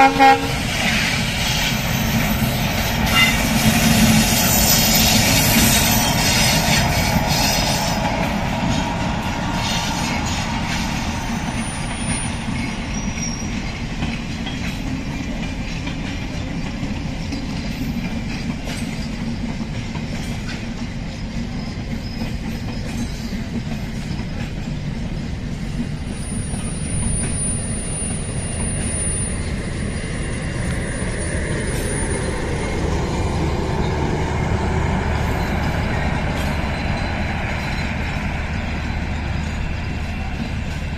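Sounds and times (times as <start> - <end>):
train wheels rumbling on rails: 0.0 - 40.9
high wheel squeal: 0.6 - 14.0, 26.1 - 40.9.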